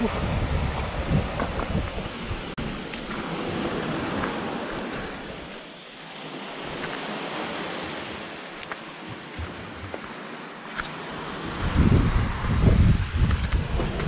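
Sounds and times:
sea surf: 0.0s - 14.0s
wind: 0.0s - 14.0s.

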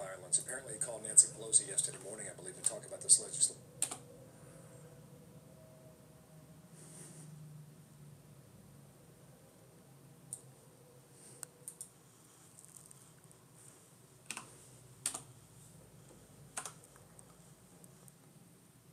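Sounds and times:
faint low hum: 0.0s - 18.9s
keyboard keystrokes: 3.8s - 4.0s, 14.3s - 15.3s, 16.6s - 16.9s.

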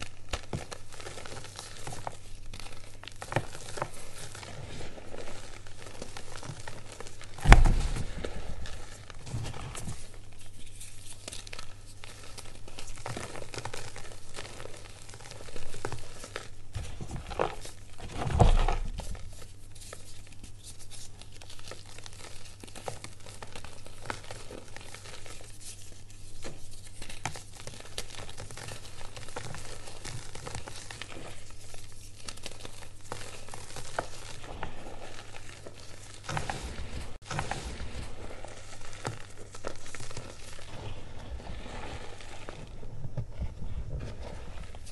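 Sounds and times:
chalk crumbling by hand: 0.0s - 44.9s
heavy thuds: 7.4s - 8.7s.

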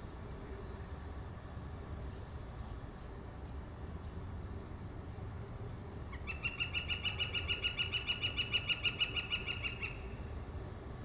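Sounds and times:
woodpecker long call: 6.2s - 10.2s.

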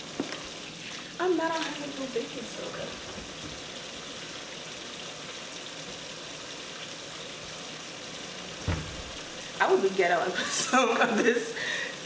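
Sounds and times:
tap running into sink: 3.0s - 3.7s, 8.6s - 9.5s.

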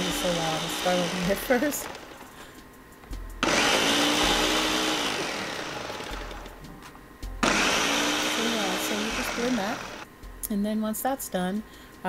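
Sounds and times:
blender crushing frozen fruit: 0.0s - 2.3s, 3.4s - 6.6s, 7.4s - 10.0s
person speaking: 8.0s - 10.6s.

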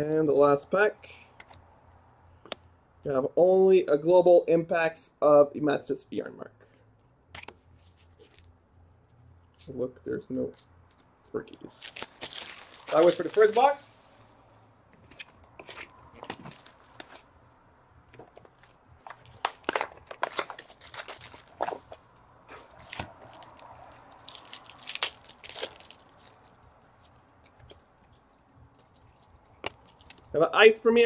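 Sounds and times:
cards rustling in hands: 7.4s - 9.8s, 10.4s - 13.9s, 15.0s - 17.3s, 18.0s - 30.4s
wrappers tearing and crinkling: 11.7s - 13.8s, 15.3s - 17.3s, 19.0s - 22.0s, 22.6s - 27.8s.

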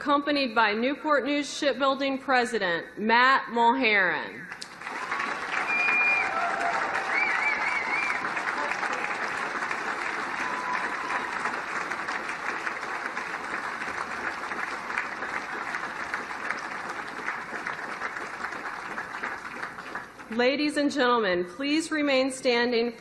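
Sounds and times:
crowd applauding: 4.6s - 20.4s.

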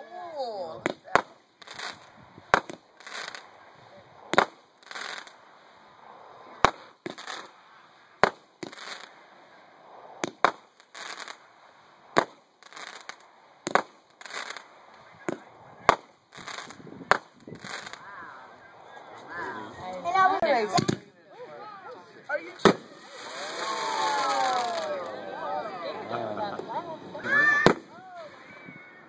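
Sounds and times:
firework shots banging: 0.8s - 3.5s, 4.3s - 5.4s, 6.5s - 7.6s, 8.2s - 9.2s, 10.2s - 11.5s, 12.1s - 18.0s, 20.7s - 21.1s, 22.5s - 24.9s, 27.6s - 28.3s
aerial shell bursting: 22.4s - 25.3s.

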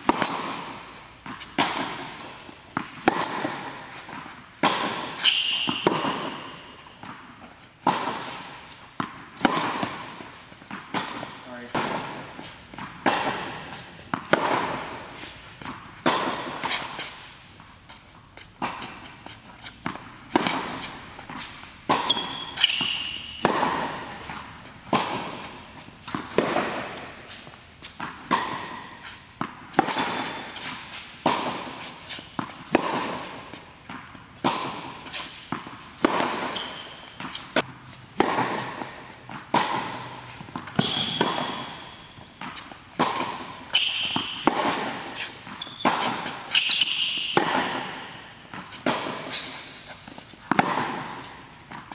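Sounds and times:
ball bouncing on hard court: 0.0s - 51.9s
tennis racquet strikes: 0.0s - 51.9s
short high squeaks: 0.2s - 1.2s, 3.1s - 4.5s, 5.2s - 5.9s, 22.0s - 23.4s, 36.2s - 37.1s, 40.7s - 42.2s, 45.2s - 47.2s.

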